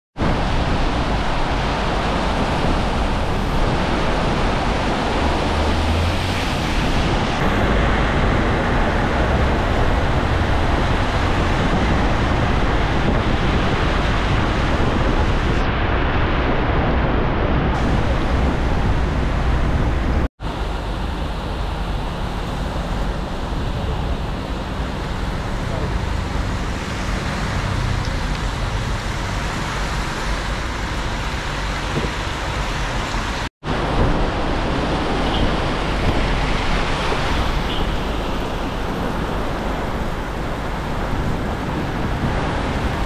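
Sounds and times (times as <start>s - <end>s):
heavy rain pouring: 0.2s - 43.0s.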